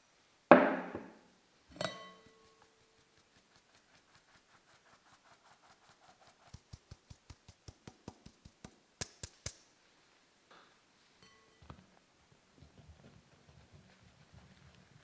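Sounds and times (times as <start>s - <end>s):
sieve tapped by hand: 6.4s - 9.6s.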